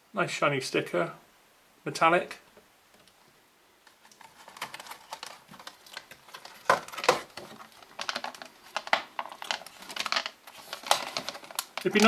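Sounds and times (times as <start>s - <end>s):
plastic packaging clicks and crackles: 3.8s - 12.0s
loud plastic snaps: 3.9s - 12.0s.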